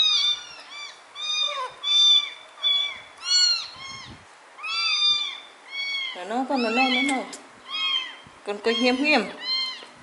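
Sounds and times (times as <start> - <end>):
kittens meowing: 0.0 - 10.0.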